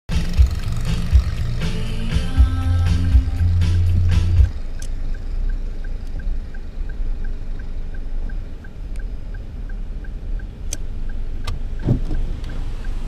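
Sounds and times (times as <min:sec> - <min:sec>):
car cabin low rumble: 0:00.1 - 0:13.0
faint even ticking: 0:00.2 - 0:13.0
sharp clicks: 0:03.8 - 0:13.0.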